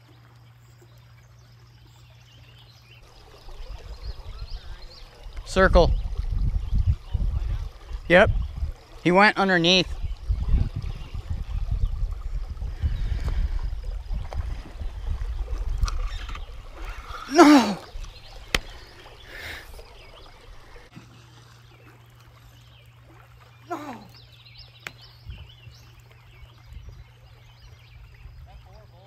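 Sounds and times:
low rumble on microphone: 3.0s - 9.1s, 9.8s - 21.0s
man's loud exclamation: 17.3s - 17.9s.

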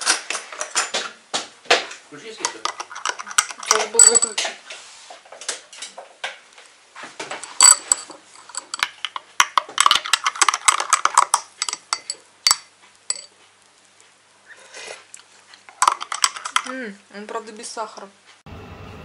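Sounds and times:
teaspoon clinking against glass: 2.7s - 4.4s, 9.9s - 13.3s.

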